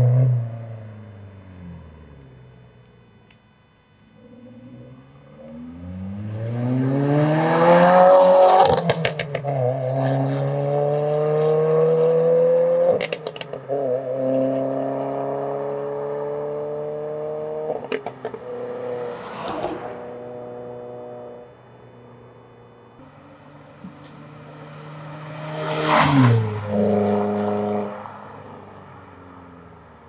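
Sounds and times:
car engine accelerating hard: 4.2 - 23.0, 23.7 - 30.0
exhaust crackles and pops: 8.5 - 9.5, 12.9 - 13.7, 17.7 - 23.0.

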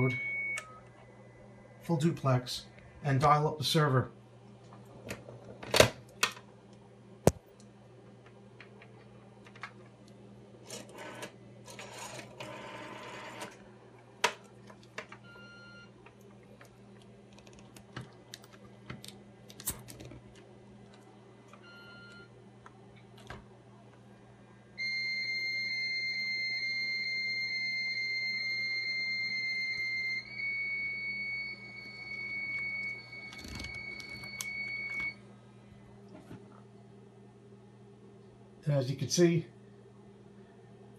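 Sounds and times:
high modem carrier tone: 0.0 - 4.1, 20.6 - 22.6, 24.8 - 35.4
rotary phone dialing: 10.7 - 13.6, 33.2 - 34.4.

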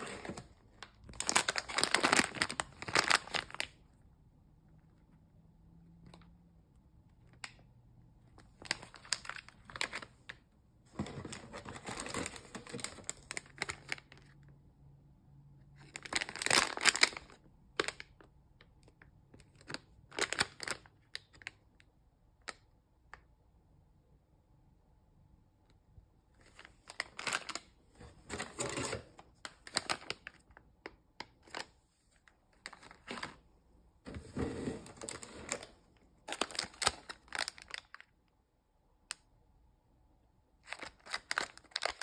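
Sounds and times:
foil packets crinkling: 0.0 - 3.8, 8.4 - 10.4, 11.0 - 14.4, 15.8 - 18.1, 19.5 - 21.6, 26.4 - 31.7, 32.5 - 33.4, 34.6 - 38.1, 40.6 - 42.0.

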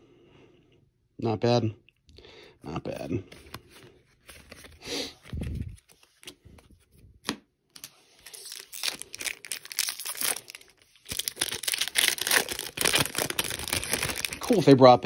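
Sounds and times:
foil wrapper tearing and crinkling: 8.2 - 14.7.

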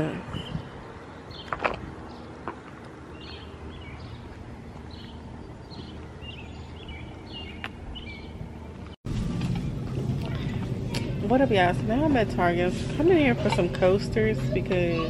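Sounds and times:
low background rumble: 7.8 - 15.0.

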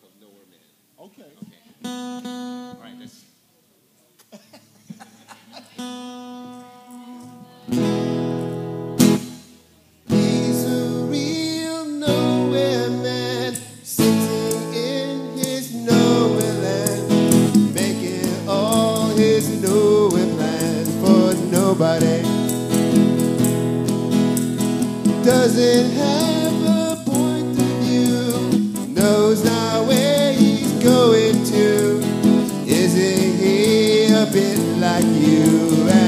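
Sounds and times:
acoustic guitar strumming: 1.8 - 3.0, 5.8 - 36.0
man singing: 10.1 - 23.0, 25.0 - 36.0.

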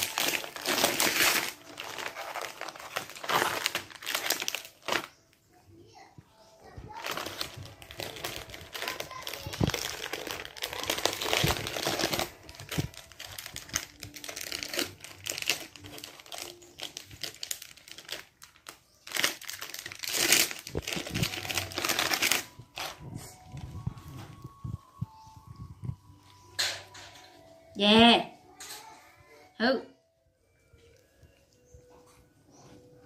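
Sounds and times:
plastic wrapper crinkling: 0.0 - 5.3, 6.6 - 25.7.

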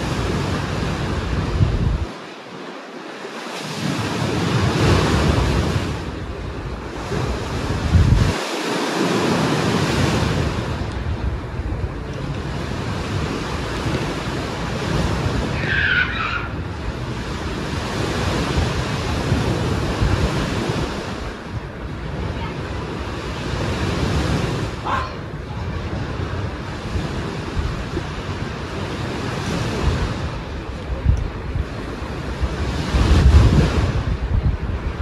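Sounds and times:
sea waves washing onto shore: 0.0 - 35.0.

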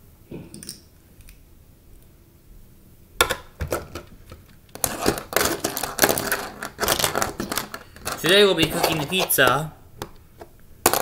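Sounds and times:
plastic bricks clicking and clattering: 3.2 - 11.0.

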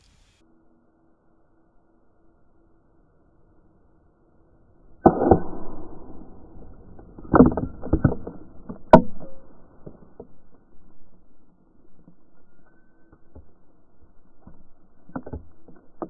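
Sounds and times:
sharp crack: 5.0 - 10.1.

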